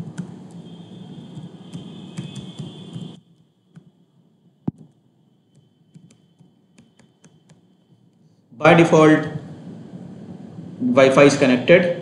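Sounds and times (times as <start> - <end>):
keyboard keystrokes: 0.0 - 0.6, 1.4 - 3.1, 4.7 - 7.6
low background hum: 0.0 - 12.0.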